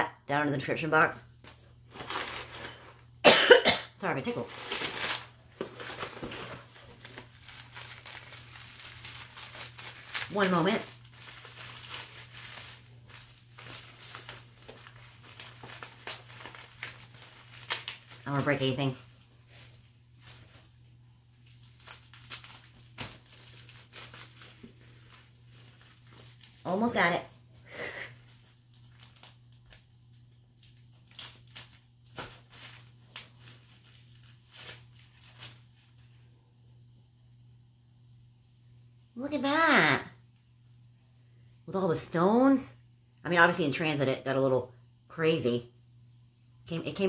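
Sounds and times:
packaging crinkling and rustling: 0:01.4 - 0:03.2, 0:04.3 - 0:36.2.

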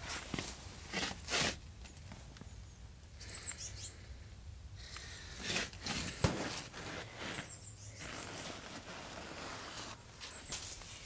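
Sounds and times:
high bird chirps: 0:03.2 - 0:04.0.

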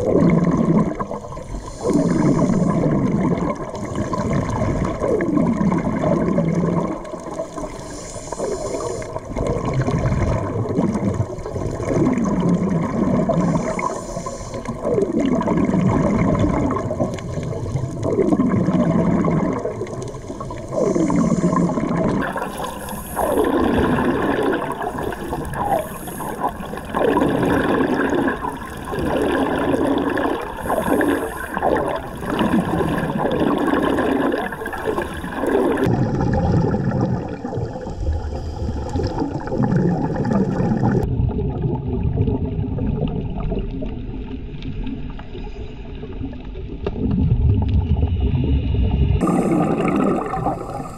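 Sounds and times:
low water rumble: 0:00.0 - 0:50.9
underwater bubbles gurgling: 0:00.0 - 0:50.9.

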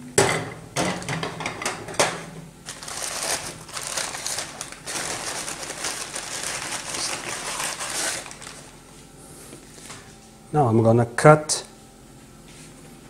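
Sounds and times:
paper bag rustling: 0:02.6 - 0:09.0.

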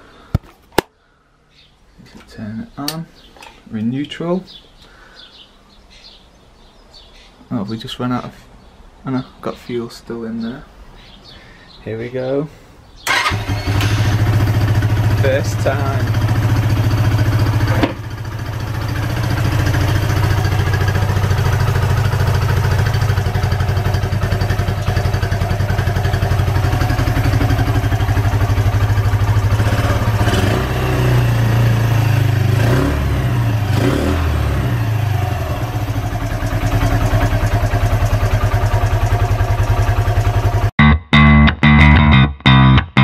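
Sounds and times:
engine revving: 0:13.1 - 0:40.7
motorcycle engine running: 0:13.1 - 0:40.7.

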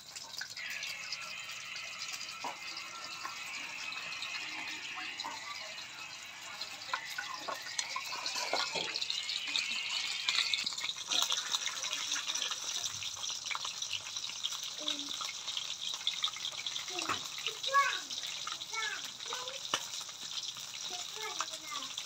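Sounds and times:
food sizzling in hot oil: 0:00.0 - 0:22.0.

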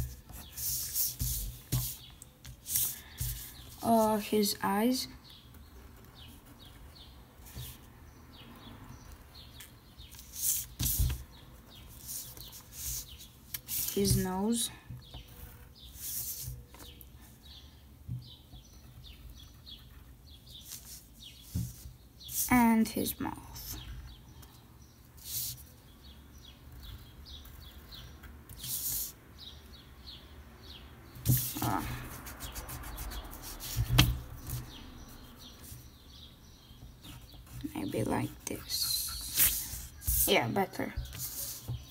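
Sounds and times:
pencil scratching on paper: 0:00.0 - 0:03.9, 0:31.2 - 0:34.7, 0:37.0 - 0:41.9.

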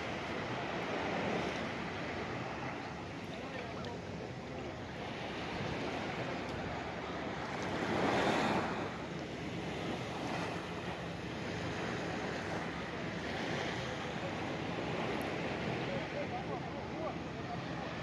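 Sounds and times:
sea water lapping: 0:00.0 - 0:18.0.

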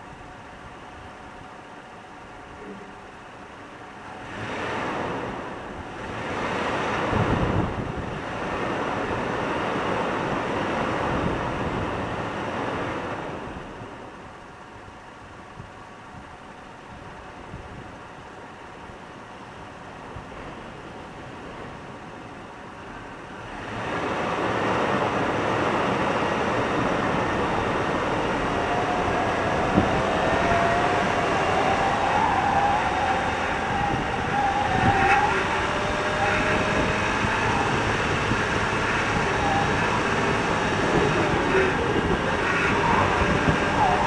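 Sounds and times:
vehicle driving on sand: 0:00.0 - 0:44.0
faint wavering whine: 0:25.9 - 0:44.0.

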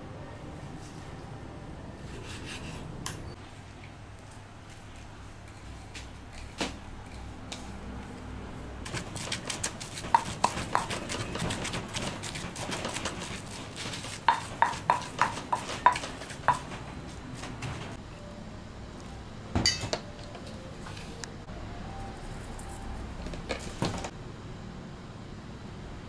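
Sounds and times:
wooden pestle knocking stone mortar: 0:08.9 - 0:16.8.

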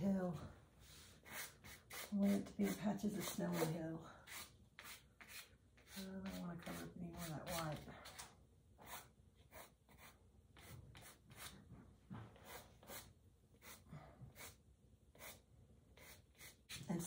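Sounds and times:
pastel stick rubbing on paper: 0:01.2 - 0:03.7, 0:04.3 - 0:08.2, 0:12.4 - 0:14.6, 0:15.2 - 0:15.4, 0:16.0 - 0:17.0.

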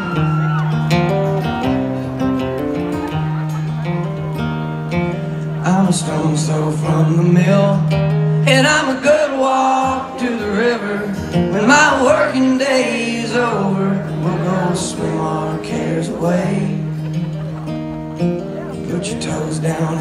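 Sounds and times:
acoustic guitar: 0:00.0 - 0:20.0
man singing: 0:05.6 - 0:17.0, 0:18.7 - 0:20.0.

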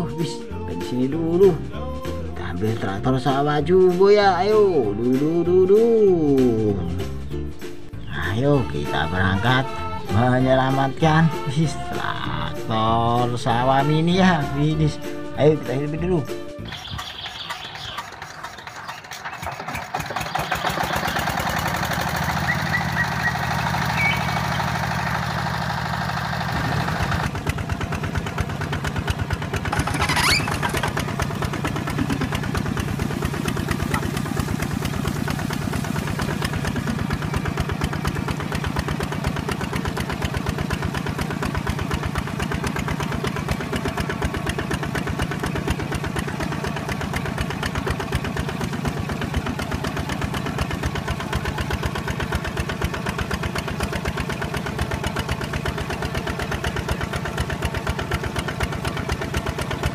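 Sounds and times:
small engine putter: 0:16.7 - 0:59.9.

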